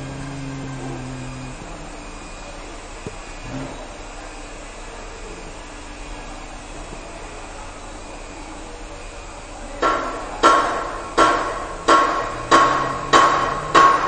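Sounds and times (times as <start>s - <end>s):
hammer ringing on metal: 9.8s - 14.0s.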